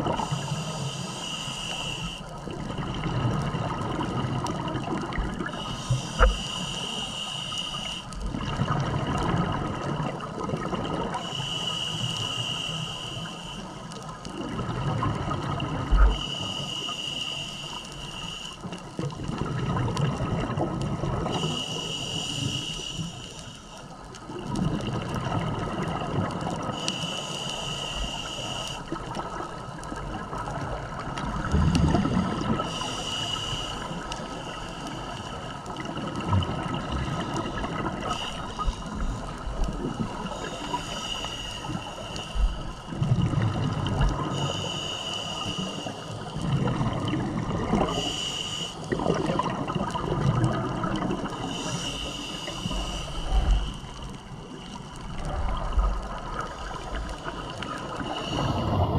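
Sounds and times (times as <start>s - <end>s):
regulator hissing inhale: 0.0s - 2.4s, 5.4s - 8.2s, 11.0s - 14.1s, 16.0s - 19.1s, 21.2s - 24.1s, 26.6s - 29.9s, 31.3s - 35.9s, 36.7s - 43.0s, 44.1s - 46.6s, 47.7s - 49.1s, 50.9s - 58.9s
bubbling exhales: 31.2s - 33.4s, 46.4s - 48.2s, 48.9s - 54.4s.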